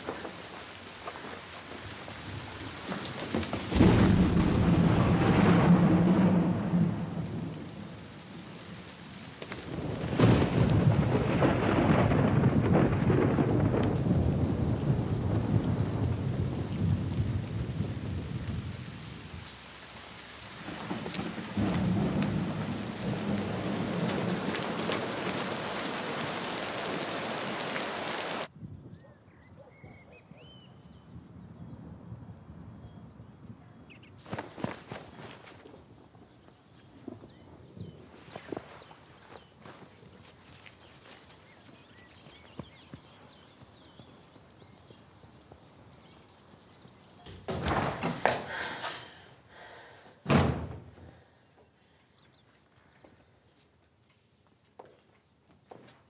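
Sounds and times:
heavy rain: 0.0 - 28.5
thunder rolling: 2.2 - 19.6, 20.4 - 28.5.

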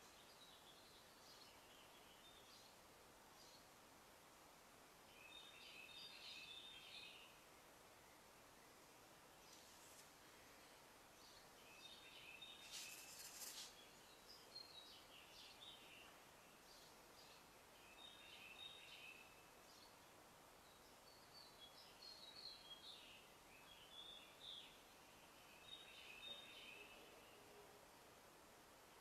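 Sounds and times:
faint bird chirps: 0.0 - 3.8, 5.1 - 27.8
brief hiss: 12.6 - 13.9.

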